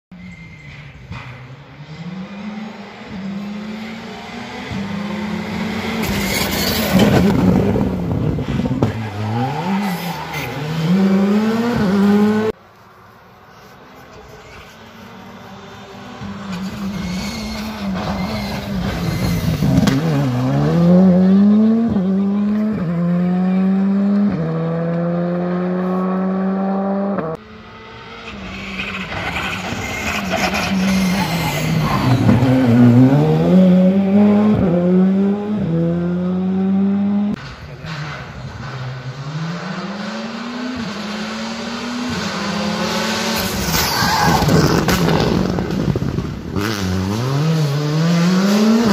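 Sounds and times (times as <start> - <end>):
rally car engine at full throttle: 0.2 - 12.6, 13.6 - 48.9.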